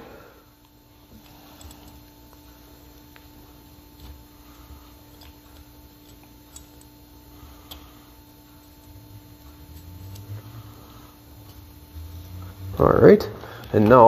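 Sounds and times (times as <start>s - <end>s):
steady hum: 0.0s - 14.0s
small metal parts clicking: 1.1s - 2.4s, 5.0s - 7.0s, 8.7s - 10.4s.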